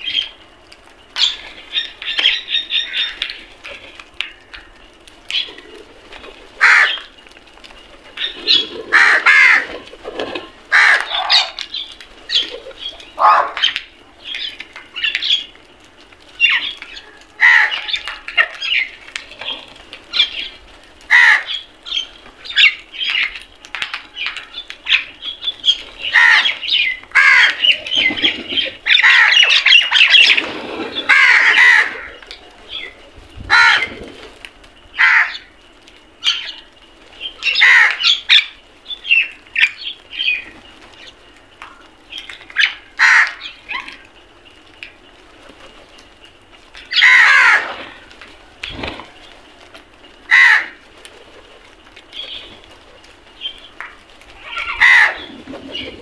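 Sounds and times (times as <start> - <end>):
crows cawing: 6.6 - 7.2, 8.5 - 11.7, 13.2 - 13.7, 17.1 - 18.6, 21.1 - 21.7, 26.0 - 27.8, 28.8 - 30.3, 31.0 - 32.3, 33.5 - 34.0, 34.9 - 35.6, 37.4 - 38.5, 42.6 - 43.9, 46.9 - 48.2, 50.2 - 50.8, 53.8 - 55.3.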